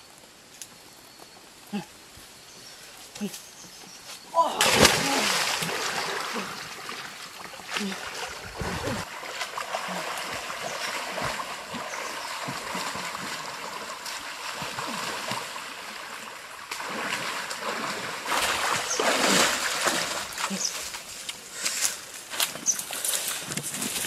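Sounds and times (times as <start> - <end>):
water splashing from wading: 4.4 - 21.2.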